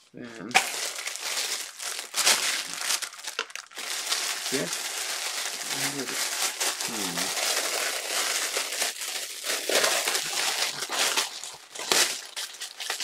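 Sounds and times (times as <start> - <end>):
packaging crinkling: 0.5 - 13.0.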